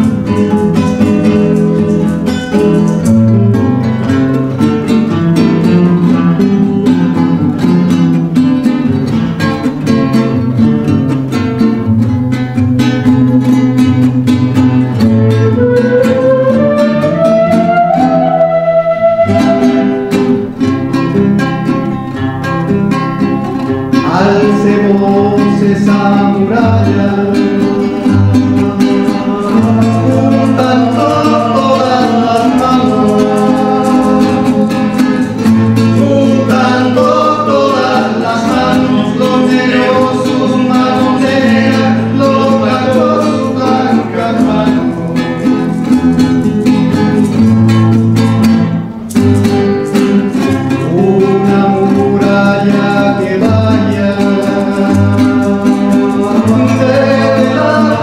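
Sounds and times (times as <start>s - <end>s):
acoustic folk music: 0.0s - 58.0s
classical guitar: 0.0s - 58.0s
small string instrument strumming: 0.0s - 58.0s.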